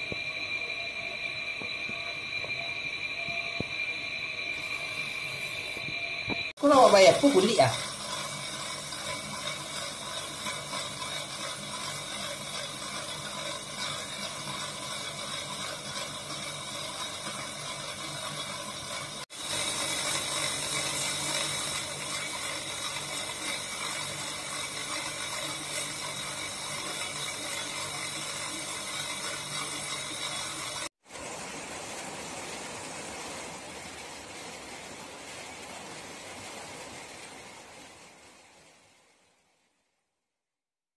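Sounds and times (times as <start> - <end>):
polishing wheel motor whirring: 0.0 - 31.0.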